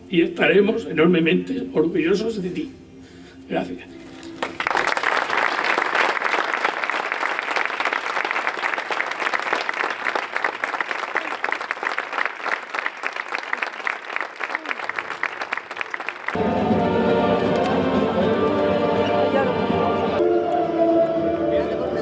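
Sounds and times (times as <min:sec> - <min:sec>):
audience applauding: 0:04.3 - 0:16.8.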